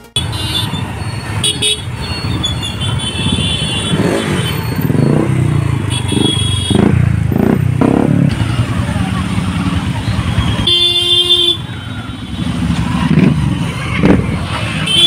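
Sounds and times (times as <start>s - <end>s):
vehicle horns honking: 0.0s - 7.5s, 9.3s - 13.2s, 14.7s - 15.0s
motorcycle and car engines: 0.1s - 15.0s.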